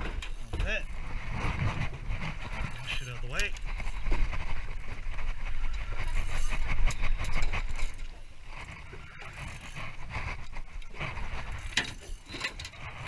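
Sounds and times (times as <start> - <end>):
fishing reel ticking whirr: 8.6 - 10.5.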